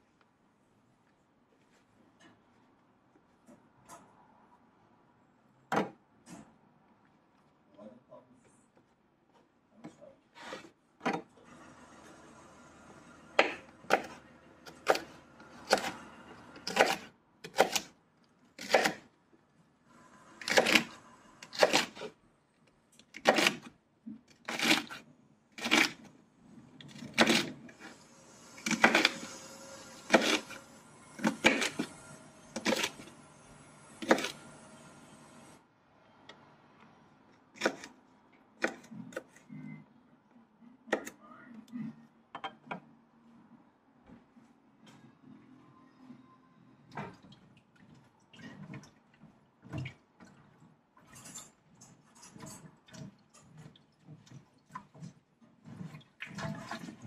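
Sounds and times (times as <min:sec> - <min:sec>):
knife chopping on wooden board: 0:13.4 - 0:15.1, 0:16.6 - 0:17.9, 0:18.6 - 0:19.0, 0:30.1 - 0:30.5.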